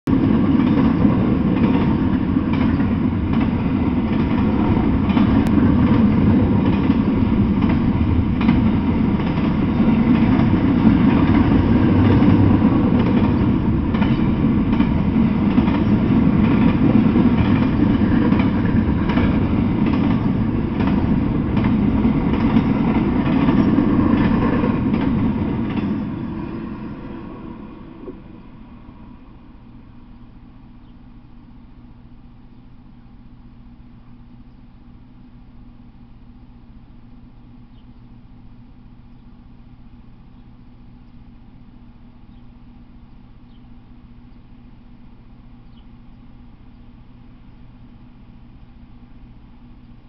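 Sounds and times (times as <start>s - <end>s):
wheels clicking over rail joints: 0.1s - 26.5s
freight train rumbling past: 0.1s - 34.0s.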